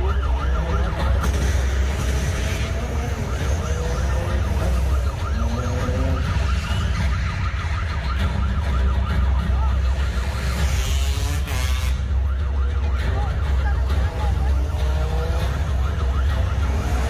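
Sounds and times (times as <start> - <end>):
siren yelping: 0.0 - 17.0.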